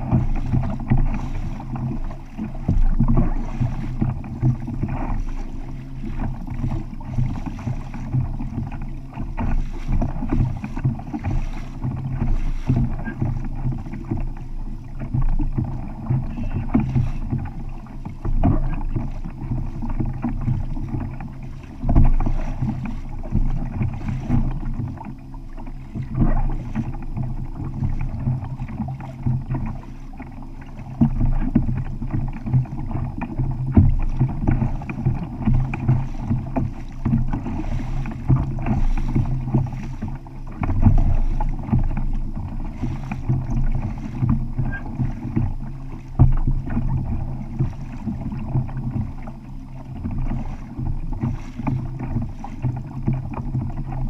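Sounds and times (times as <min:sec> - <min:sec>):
wind buffeting microphone: 0:00.0 - 0:25.0
water slapping against kayak hull: 0:00.0 - 0:54.0.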